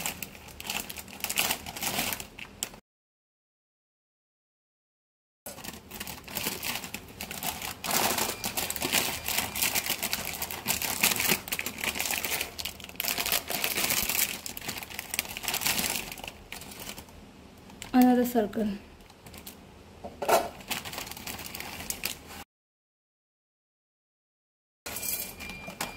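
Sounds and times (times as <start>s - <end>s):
plastic packets crinkling: 0.0s - 2.8s, 5.5s - 18.2s, 19.0s - 19.6s, 20.5s - 22.4s.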